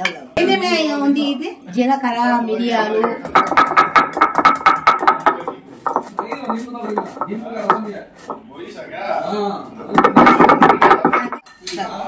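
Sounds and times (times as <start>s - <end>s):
stone roller crushing seeds: 3.0s - 8.4s.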